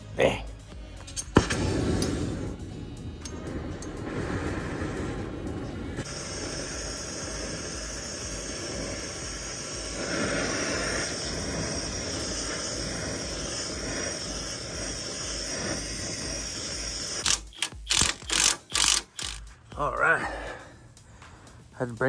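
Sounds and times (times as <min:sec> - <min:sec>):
torch flame hissing: 0:01.2 - 0:19.6
impact wrench bursts: 0:06.0 - 0:19.5.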